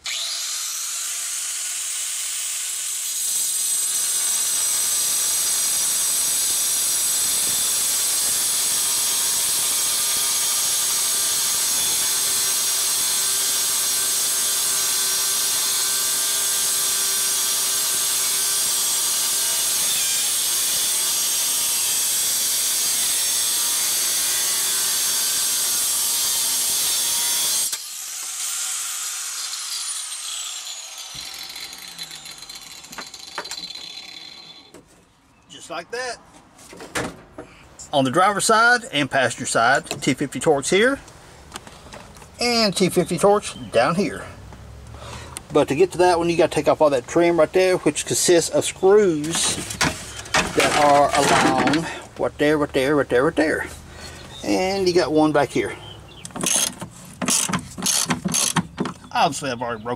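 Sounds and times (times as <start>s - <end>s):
angle grinder whining: 0.0s - 34.8s, 48.2s - 55.4s
grinder cutting through steel: 0.0s - 34.8s, 48.1s - 55.4s, 56.4s - 58.7s.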